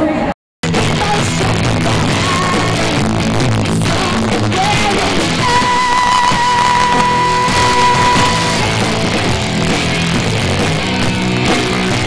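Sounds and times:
live rock band playing: 0.6 - 12.0
woman singing: 1.0 - 2.9, 3.8 - 8.9.

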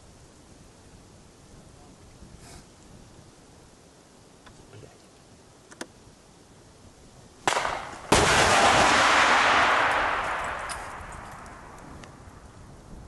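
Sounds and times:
sharp bangs: 7.5 - 12.0.

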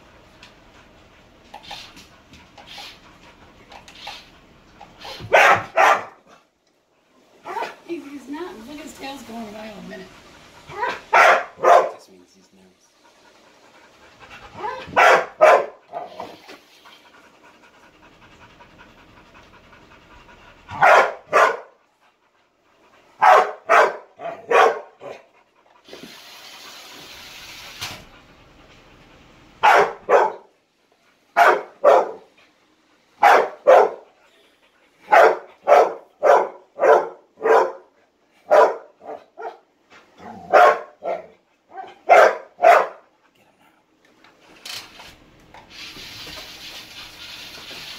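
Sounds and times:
dog barking: 5.3 - 6.3, 10.7 - 12.0, 14.6 - 16.3, 20.7 - 21.8, 23.2 - 25.2, 29.6 - 30.5, 31.4 - 32.3, 33.2 - 34.1, 35.1 - 39.6, 40.2 - 43.0.

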